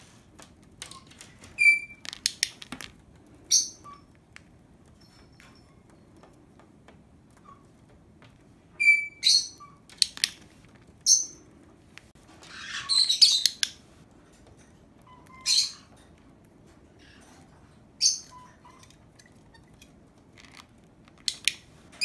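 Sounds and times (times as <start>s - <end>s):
bird chirping: 1.0s - 2.5s, 3.5s - 4.1s, 8.8s - 10.2s, 12.4s - 13.8s, 15.0s - 16.0s, 18.0s - 19.8s.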